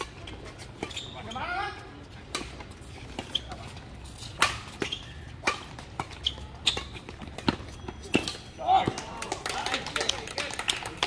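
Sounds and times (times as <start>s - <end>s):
rackets smacking a shuttlecock: 2.2s - 9.2s.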